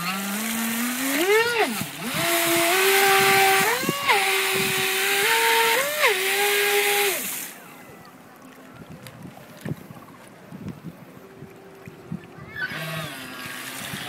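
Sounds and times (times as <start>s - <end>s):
small motor whining: 0.0s - 7.6s, 12.0s - 14.0s
water jet spraying: 0.0s - 7.7s, 11.8s - 14.0s.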